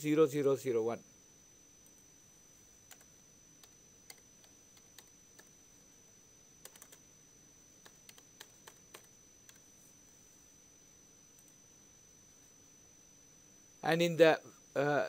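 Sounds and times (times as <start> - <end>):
faint keyboard typing: 1.8 - 2.1, 2.8 - 5.6, 6.6 - 7.1, 7.8 - 9.8, 11.3 - 11.6.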